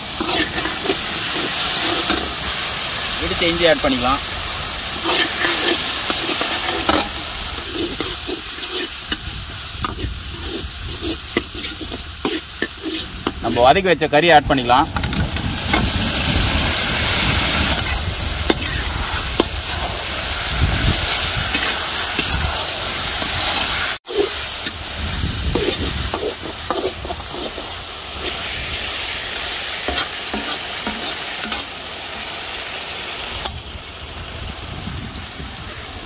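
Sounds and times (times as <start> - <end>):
utensil scraping a pan: 0.0 - 2.4, 5.0 - 13.8, 14.9 - 20.0, 23.2 - 24.8, 25.4 - 28.5, 29.8 - 31.7
chicken sizzling in hot oil: 0.0 - 36.0.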